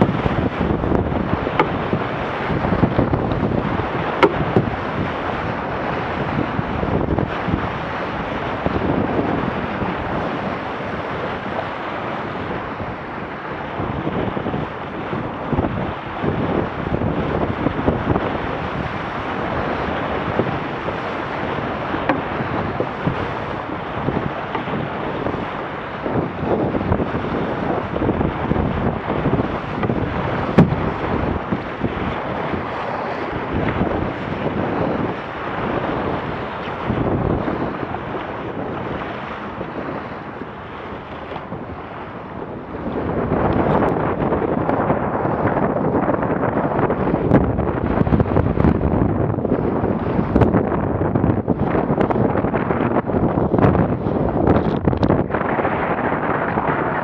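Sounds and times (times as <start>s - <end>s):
water splashing along boat hull: 0.0s - 57.0s
wind buffeting microphone: 0.0s - 57.0s
short knocks: 1.5s - 1.9s, 4.2s - 4.7s.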